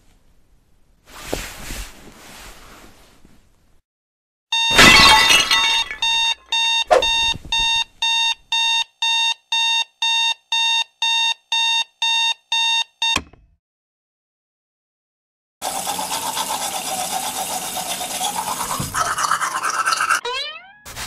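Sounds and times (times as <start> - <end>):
alarm clock beeping: 4.5 - 4.8, 5.8 - 13.2.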